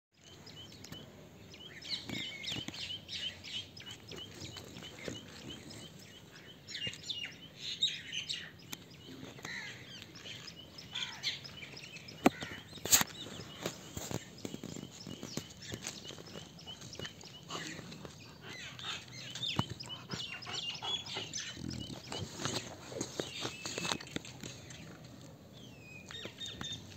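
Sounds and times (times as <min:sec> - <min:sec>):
small birds chirping: 0:00.2 - 0:26.9.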